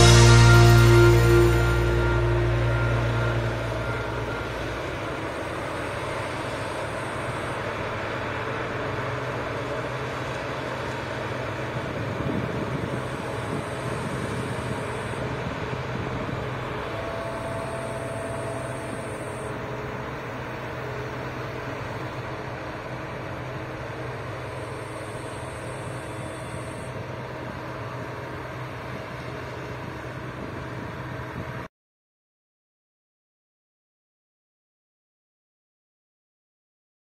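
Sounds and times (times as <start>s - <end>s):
background music: 0.0s - 5.0s
combine harvesters droning: 0.0s - 31.7s.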